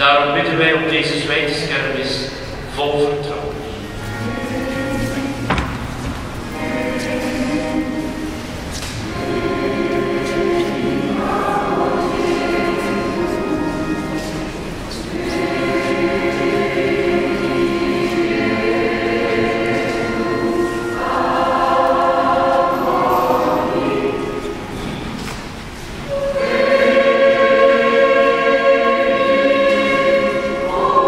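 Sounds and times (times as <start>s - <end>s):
choir singing a chant: 0.2s - 25.2s, 26.0s - 31.0s.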